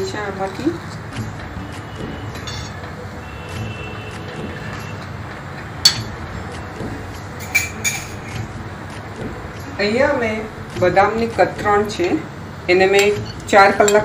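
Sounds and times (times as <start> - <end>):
bowl clinking: 2.3 - 2.9, 5.8 - 6.3, 7.2 - 8.5.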